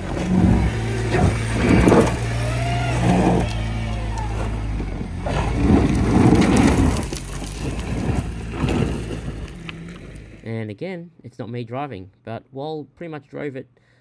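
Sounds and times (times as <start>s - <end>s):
car engine revving: 0.0s - 10.5s
wheels spinning in loose dirt: 0.0s - 10.5s.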